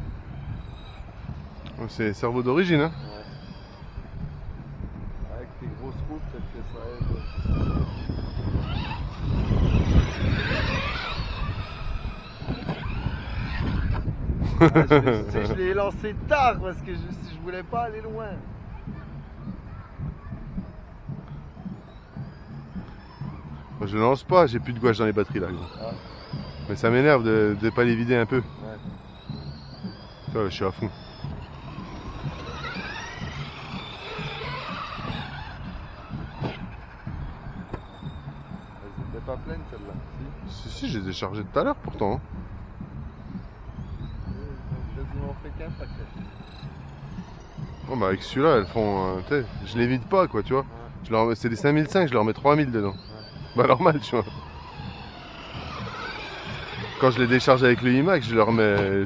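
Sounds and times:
electric motors whining: 0.0 - 59.0.

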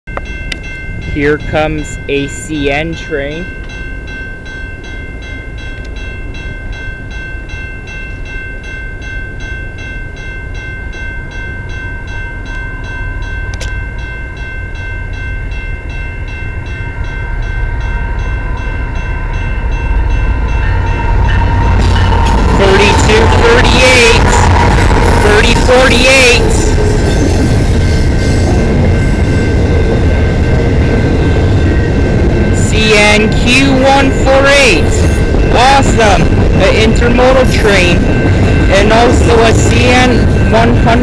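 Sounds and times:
freight train rumbling: 0.1 - 41.0
level-crossing warning bell ringing: 0.1 - 41.0.

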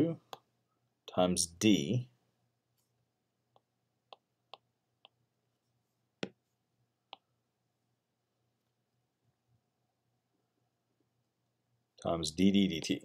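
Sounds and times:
stylus tapping on tablet: 3.5 - 5.2, 6.2 - 6.4, 7.1 - 7.3.

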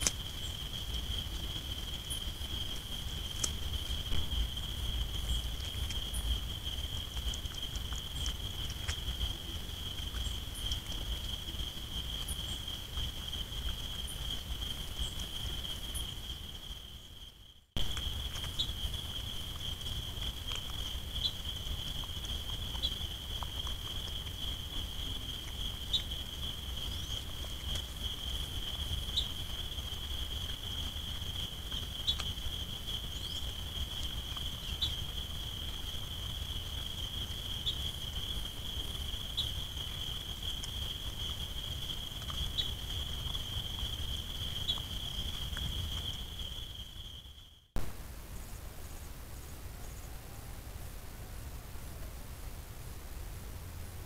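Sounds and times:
insect trilling: 0.0 - 47.8.

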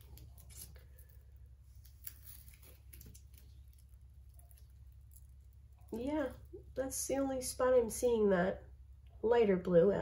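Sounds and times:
hands rustling plastic film: 0.0 - 6.6
steady low hum: 0.0 - 10.0.

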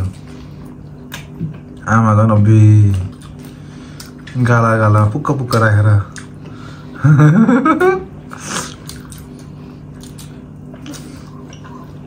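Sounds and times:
steady low hum: 0.0 - 12.0
mouth and chewing noises: 2.8 - 6.6, 8.3 - 12.0
noisy breath: 6.4 - 7.0.

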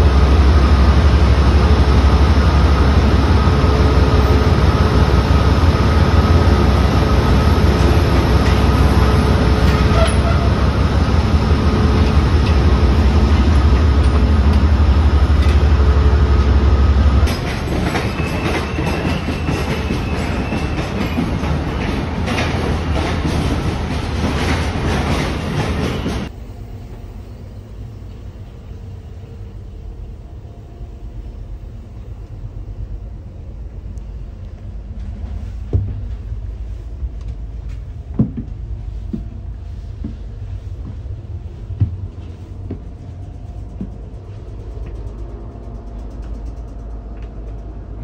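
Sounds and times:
low hum inside train car: 0.0 - 48.0
standing train rumble and hiss: 0.0 - 48.0
knocks and bumps: 38.1 - 39.3.

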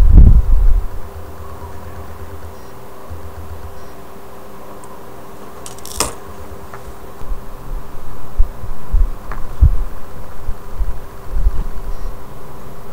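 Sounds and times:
steady electrical hum: 0.0 - 12.9
paper rustling and thumps: 5.6 - 6.9.

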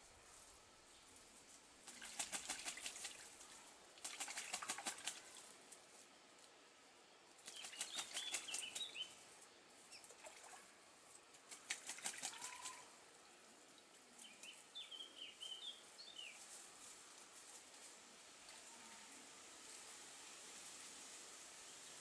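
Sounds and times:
bird splashing and flapping in water: 1.8 - 5.5, 7.4 - 9.1, 10.0 - 10.7, 11.3 - 12.9.

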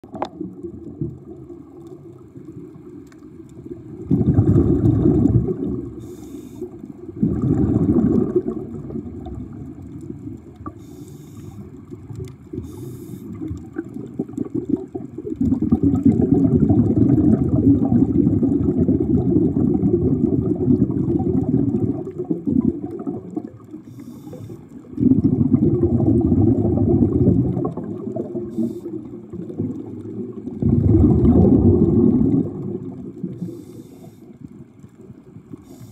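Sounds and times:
faint crackles: 0.0 - 35.9
muffled underwater water noise: 0.0 - 35.9.

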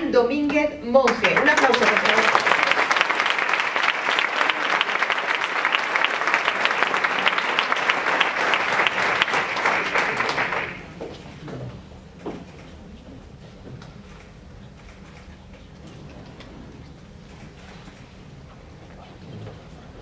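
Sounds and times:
audience applauding: 1.1 - 11.0.

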